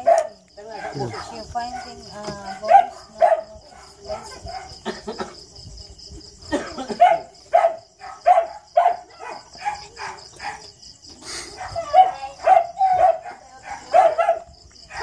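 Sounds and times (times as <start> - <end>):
dog barking sharply: 7.0 - 10.6.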